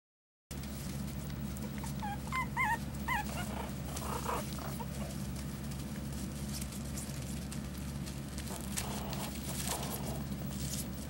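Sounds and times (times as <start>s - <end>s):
steady low hum: 0.5s - 11.0s
puppies whimpering: 1.6s - 5.3s, 8.5s - 10.4s.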